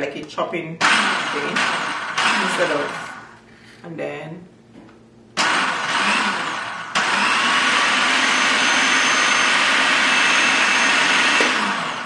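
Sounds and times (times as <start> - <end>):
food processor motor whining: 0.8 - 3.3, 5.4 - 12.0.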